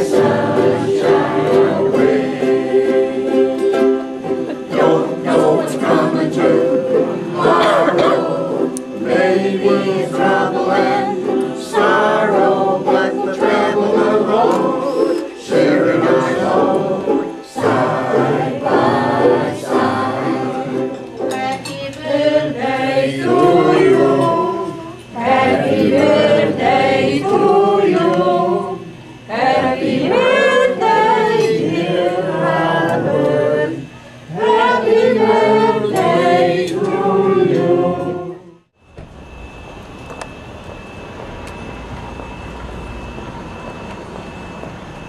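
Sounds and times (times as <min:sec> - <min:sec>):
strummed ukuleles: 0:00.0 - 0:28.5
group of people singing: 0:00.0 - 0:38.7.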